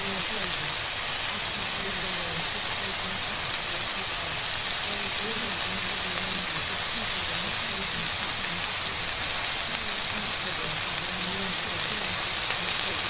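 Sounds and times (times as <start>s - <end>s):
faint spoken voices: 0.0s - 13.0s
steady rain: 0.0s - 13.0s.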